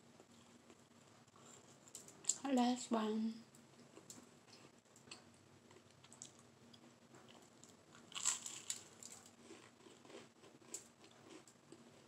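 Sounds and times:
toast crunching while chewed: 0:03.8 - 0:12.0.

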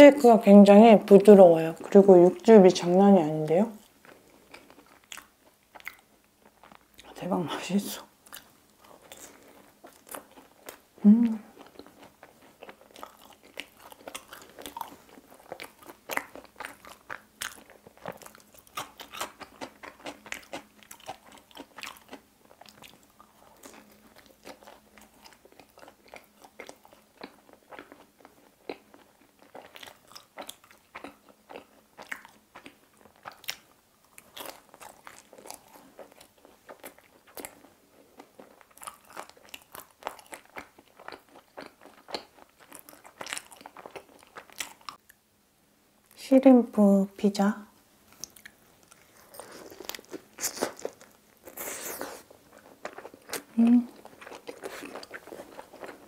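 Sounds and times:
person chewing crunchy crust: 0:03.8 - 0:07.2, 0:08.2 - 0:45.1, 0:48.1 - 0:56.0.

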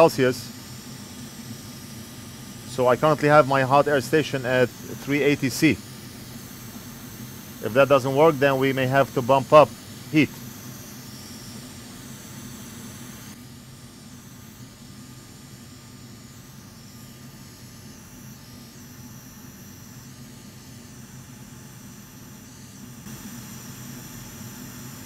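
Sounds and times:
fan humming: 0:00.0 - 0:15.6
hot air blower hissing: 0:00.0 - 0:25.0.

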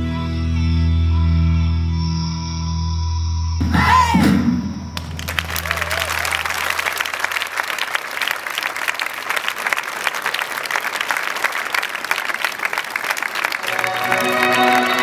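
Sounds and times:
audience applauding: 0:05.0 - 0:15.0.

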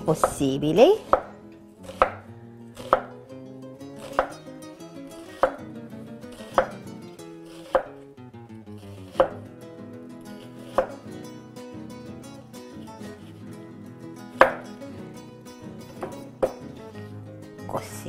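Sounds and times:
knife slicing onion on cutting board: 0:00.1 - 0:00.4, 0:01.0 - 0:08.1, 0:08.7 - 0:09.6, 0:10.2 - 0:11.3, 0:14.3 - 0:14.8, 0:15.9 - 0:16.8.

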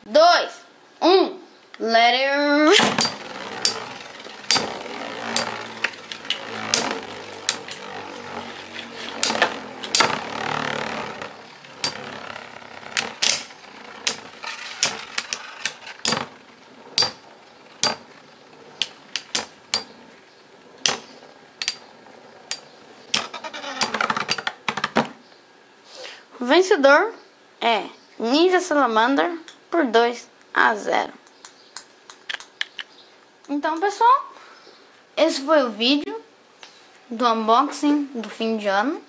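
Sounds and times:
whir of spinning tops: 0:02.6 - 0:24.8
spinning tops clashing: 0:02.7 - 0:20.1.

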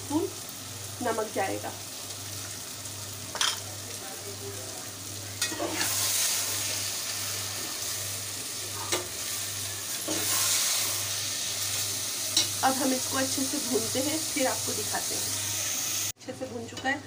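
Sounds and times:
masala sizzling in oil: 0:00.0 - 0:17.0.

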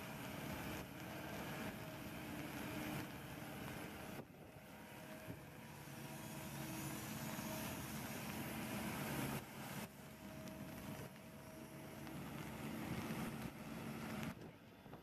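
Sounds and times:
excavator diesel engine running: 0:00.0 - 0:15.0.

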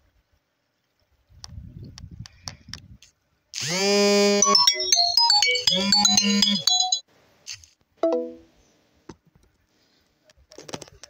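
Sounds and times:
electronic jingle: 0:04.1 - 0:07.0.

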